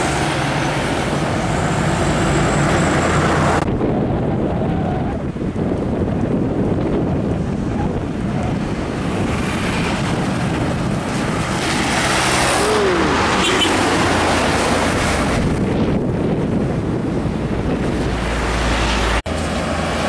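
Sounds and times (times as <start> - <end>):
diesel truck engines: 0.0 - 20.0
rushing tyre noise: 0.0 - 20.0
wind noise on microphone: 0.0 - 20.0
motorcycles passing: 6.3 - 20.0.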